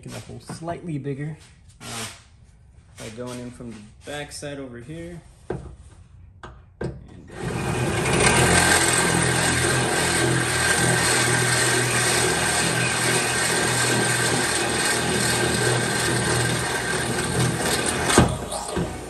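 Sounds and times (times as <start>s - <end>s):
power drill boring through sheet steel: 7.3s - 19.0s.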